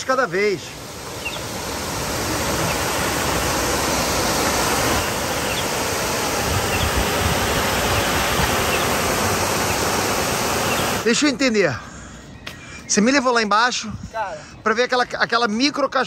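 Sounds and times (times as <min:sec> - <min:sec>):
waterfall rushing: 0:00.0 - 0:11.2.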